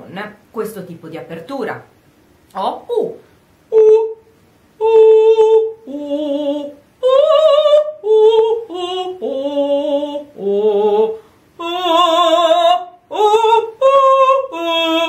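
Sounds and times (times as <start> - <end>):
woman singing vowel notes: 3.0 - 15.0.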